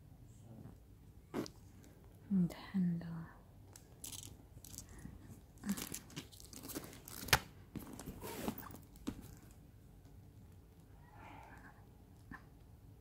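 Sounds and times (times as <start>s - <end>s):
bag handles rustling and scraping: 4.0s - 9.5s.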